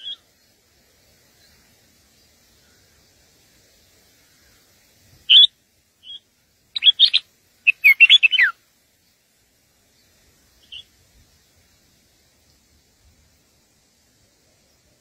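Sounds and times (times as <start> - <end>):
birds chirping: 0.0 - 11.8.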